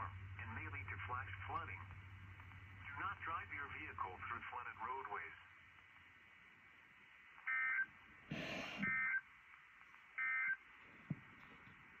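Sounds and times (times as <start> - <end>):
burst of static: 8.3 - 9.1.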